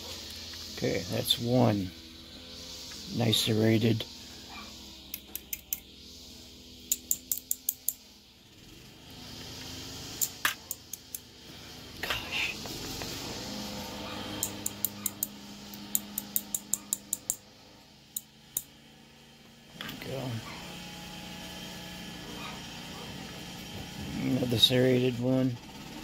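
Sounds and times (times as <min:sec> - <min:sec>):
metal tool tapping lock pins: 0:06.9 - 0:08.0, 0:15.9 - 0:17.4.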